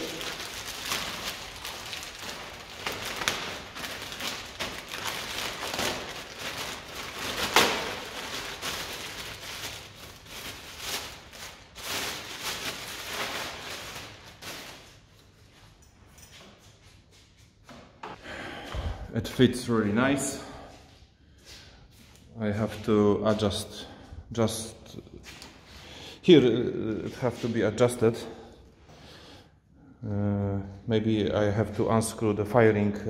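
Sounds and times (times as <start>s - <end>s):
plastic cover crackling rustle: 0.0s - 15.8s.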